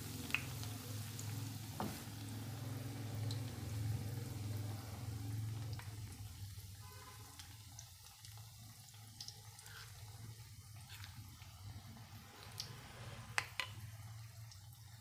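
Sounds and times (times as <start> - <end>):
chilies deep-frying in hot oil: 0.0 - 15.0.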